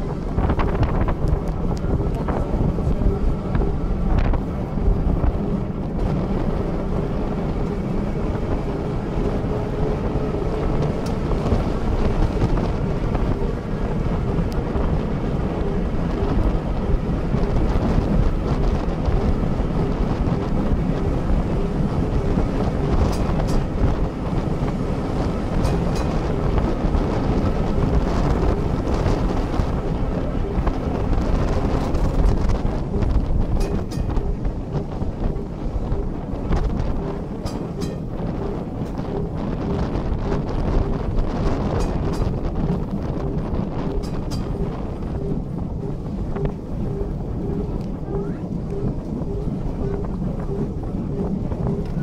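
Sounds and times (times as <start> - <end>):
faint hum: 0.0 - 52.0
tram wheels rumbling on rail: 0.0 - 52.0
wind buffeting microphone: 0.0 - 52.0.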